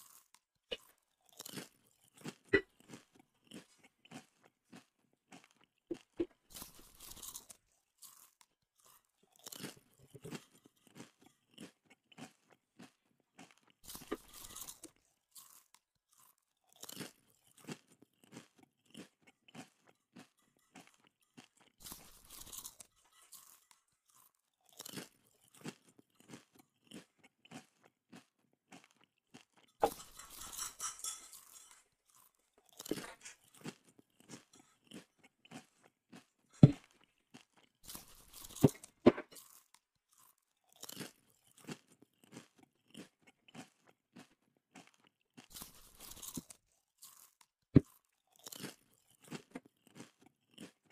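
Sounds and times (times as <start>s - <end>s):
crunching of chewed bone: 0.0s - 50.9s.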